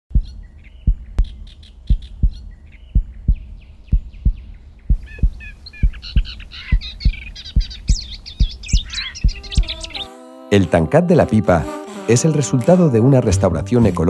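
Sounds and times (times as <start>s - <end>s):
deep thumping heartbeat beat: 0.1s - 10.0s
birdsong chirps: 0.1s - 10.2s.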